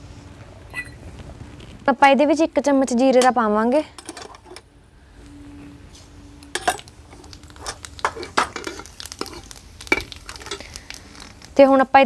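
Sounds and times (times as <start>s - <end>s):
metal utensils clinking: 4.0s - 4.6s, 6.5s - 6.9s, 7.6s - 10.7s.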